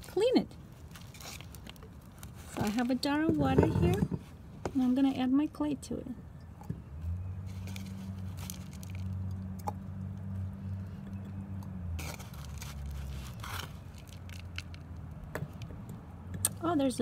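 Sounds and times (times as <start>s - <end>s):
crumbly clay scraping: 0.0s - 5.4s, 7.4s - 10.5s, 11.1s - 15.8s.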